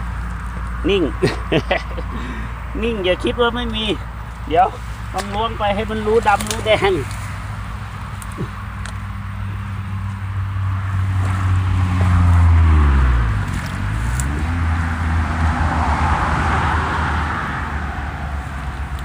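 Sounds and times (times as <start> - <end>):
vehicle driving past: 5.8 - 19.0.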